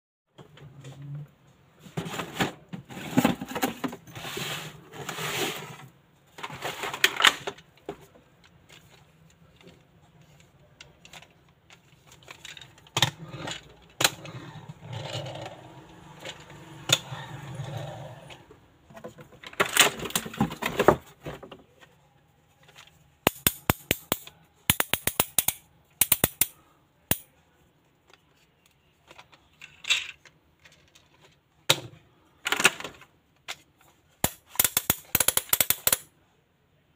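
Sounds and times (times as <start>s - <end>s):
cardboard and plastic rustling: 1.8s - 13.0s, 18.9s - 23.2s
toy car ratchet clicks: 23.3s - 27.2s, 34.2s - 36.1s.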